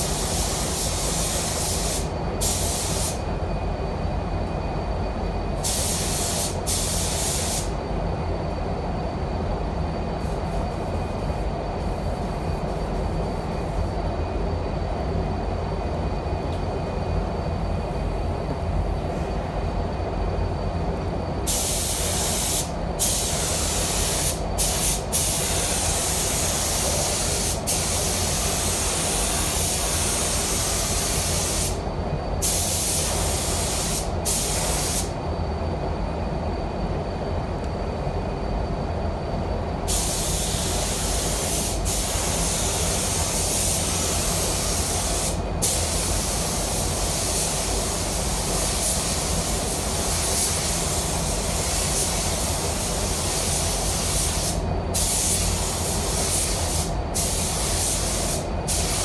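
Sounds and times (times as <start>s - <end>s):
paint spray gun hissing: 0.0s - 3.2s, 5.6s - 7.7s, 21.5s - 31.8s, 32.4s - 35.2s, 39.9s - 59.0s.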